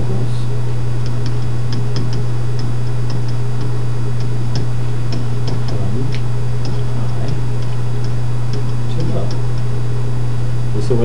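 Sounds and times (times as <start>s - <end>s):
loud low electrical hum: 0.0s - 11.0s
stylus tapping on screen: 1.0s - 9.7s.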